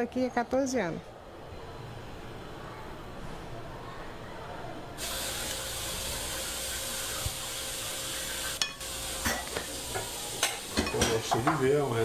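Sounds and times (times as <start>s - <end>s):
cutlery clinking on plates: 8.6s - 11.7s.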